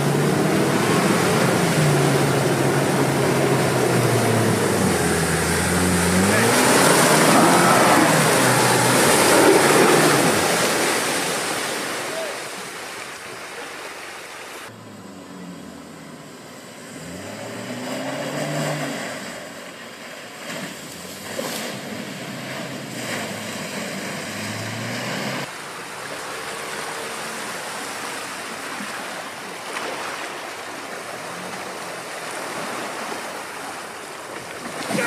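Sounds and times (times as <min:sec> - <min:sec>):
engine revving: 0:00.0 - 0:11.4, 0:14.7 - 0:19.5, 0:21.1 - 0:25.5
water rushing and splashing: 0:00.0 - 0:35.0.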